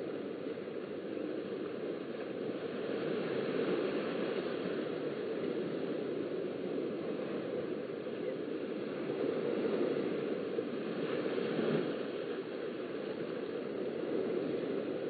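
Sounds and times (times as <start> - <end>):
small waves washing on sand: 0.0 - 15.0
wave breaking: 0.0 - 15.0.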